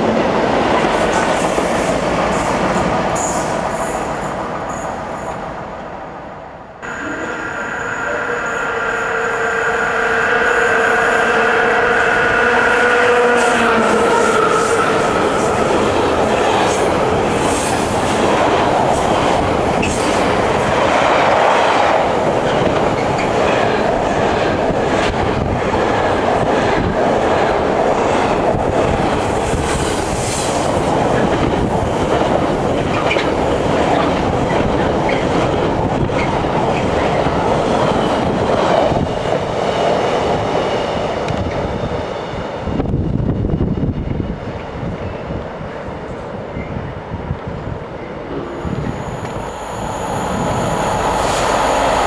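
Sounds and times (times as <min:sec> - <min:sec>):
train wheels rumbling on rails: 0:00.0 - 0:05.8, 0:06.8 - 0:52.0
high wheel squeals: 0:48.5 - 0:52.0.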